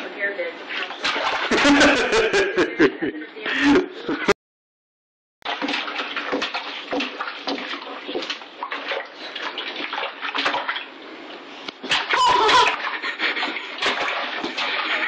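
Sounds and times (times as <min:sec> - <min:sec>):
baby splashing water: 0:00.7 - 0:02.1, 0:05.4 - 0:15.0.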